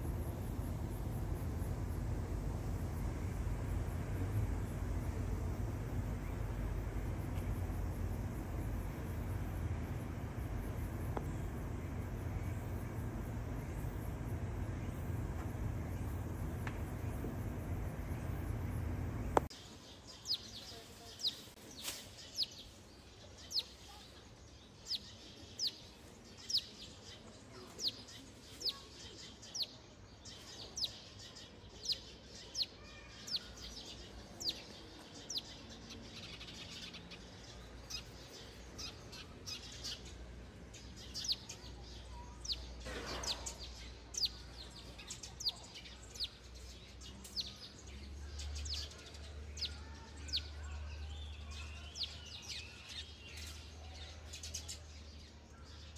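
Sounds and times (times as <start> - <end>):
low rumble: 0.0 - 19.5
small bird chirping: 0.0 - 55.9.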